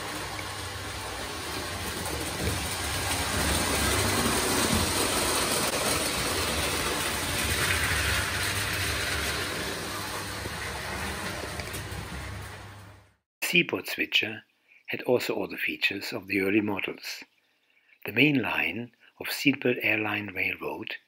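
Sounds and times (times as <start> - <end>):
low motor hum: 0.0 - 13.2.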